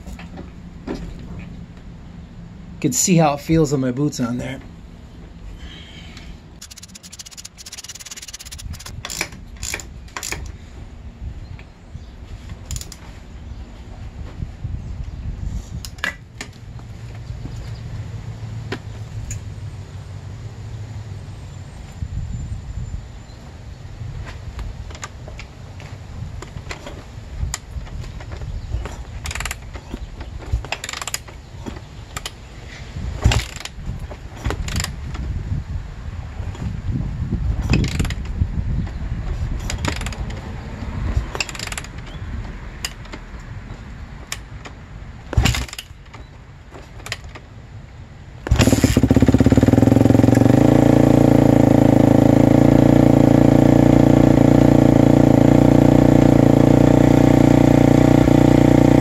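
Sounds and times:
ratchet-like clicks: 0:06.6 - 0:10.5
sharp metal clicks of lever: 0:06.6 - 0:10.6, 0:28.8 - 0:32.4, 0:34.4 - 0:35.2, 0:37.6 - 0:38.3, 0:39.6 - 0:40.4, 0:41.2 - 0:42.2, 0:44.3 - 0:47.5.

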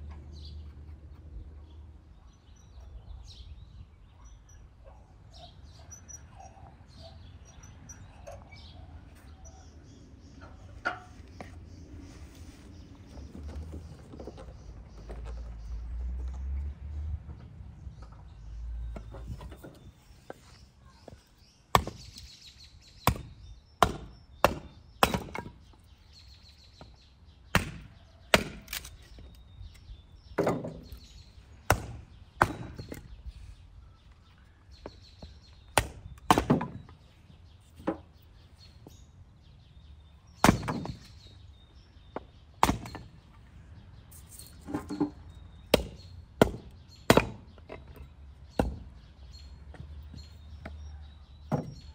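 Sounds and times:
axe chopping wood: 0:21.7 - 0:22.2, 0:23.0 - 0:25.6, 0:27.5 - 0:28.8, 0:30.4 - 0:31.0, 0:31.6 - 0:33.1, 0:35.7 - 0:36.9, 0:40.4 - 0:41.2, 0:42.2 - 0:43.1, 0:45.7 - 0:48.9.

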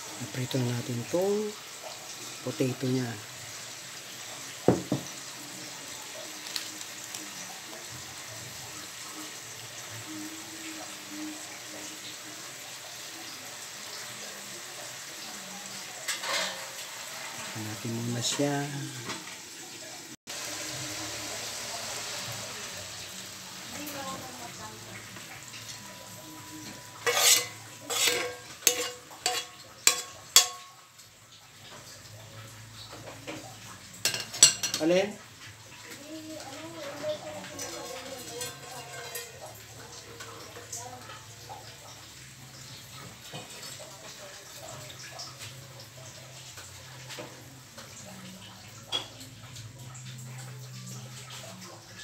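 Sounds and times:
meat sizzling in a wok: 0:00.0 - 0:52.0
spatula knocking on pans: 0:04.6 - 0:05.2, 0:26.7 - 0:30.8
metal spatula scraping pan: 0:26.6 - 0:30.7.

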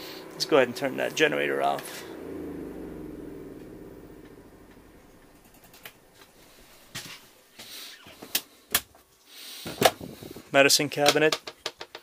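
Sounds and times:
generator winding down: 0:00.0 - 0:07.6.

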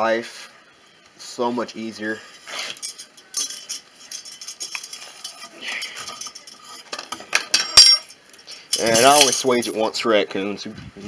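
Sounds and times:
metal cable and hardware clinking: 0:02.3 - 0:09.9.

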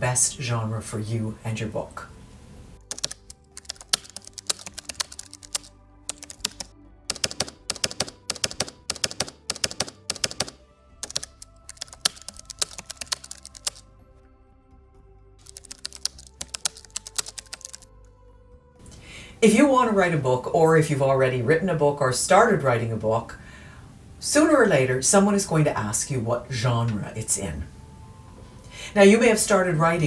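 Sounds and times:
background music: 0:00.0 - 0:30.0
typewriter keys clacking: 0:02.9 - 0:13.8, 0:15.4 - 0:17.8.

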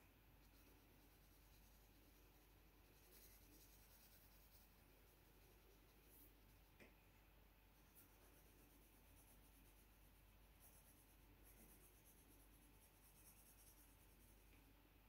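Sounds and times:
pencil scratching on paper: 0:00.4 - 0:06.7, 0:07.8 - 0:14.5.

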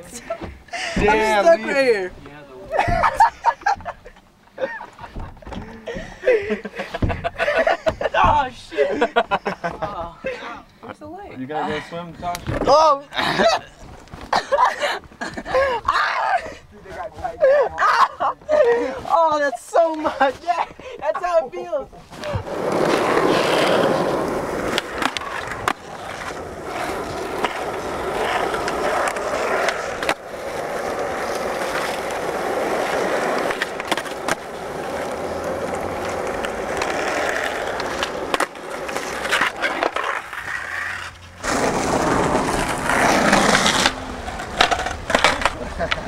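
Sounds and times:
skateboard wheels rolling on concrete: 0:00.0 - 0:10.4, 0:11.7 - 0:46.0
skateboard clacks: 0:22.2 - 0:46.0.

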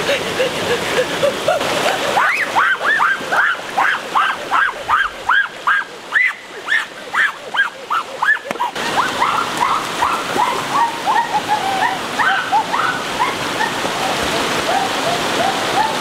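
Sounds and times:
rushing stream water: 0:00.0 - 0:16.0
animal yelping: 0:02.2 - 0:13.7.

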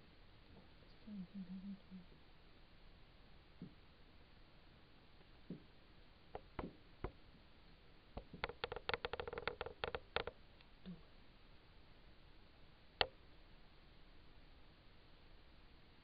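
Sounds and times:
light clicks and taps: 0:08.2 - 0:11.0.

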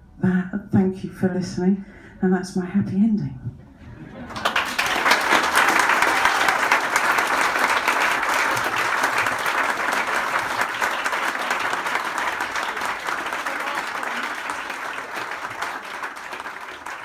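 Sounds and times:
audience clapping: 0:04.1 - 0:17.0.

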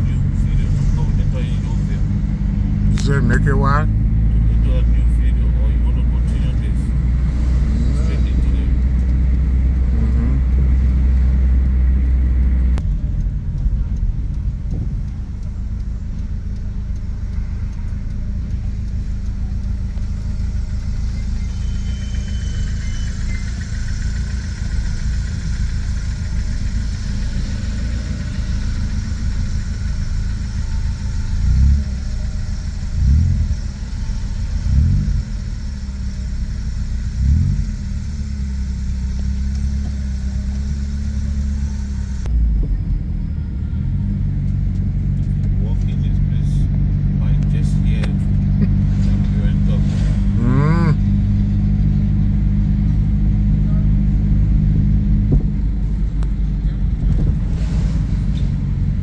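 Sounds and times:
car engine rumble: 0:00.0 - 0:59.0
road noise: 0:00.0 - 0:59.0
low thumps: 0:08.7 - 0:20.4, 0:54.4 - 0:58.6.

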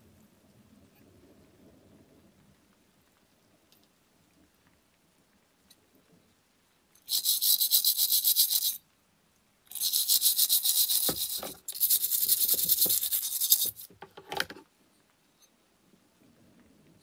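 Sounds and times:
wire brush scrubbing metal: 0:07.1 - 0:08.8, 0:09.7 - 0:14.0.

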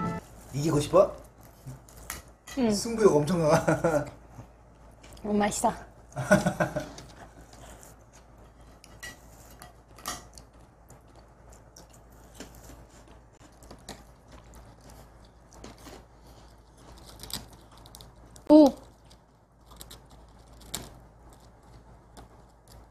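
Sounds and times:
candy crunching and clicking: 0:09.9 - 0:22.9.

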